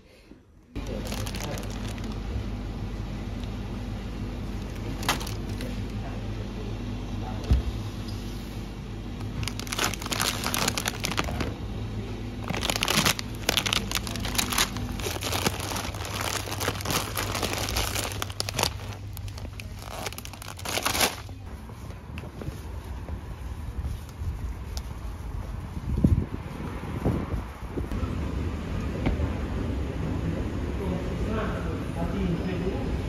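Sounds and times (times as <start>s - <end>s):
low steady hum: 0.1s - 26.5s
plastic packaging crinkling: 0.8s - 2.3s, 4.6s - 6.0s, 9.2s - 11.6s, 12.4s - 21.5s.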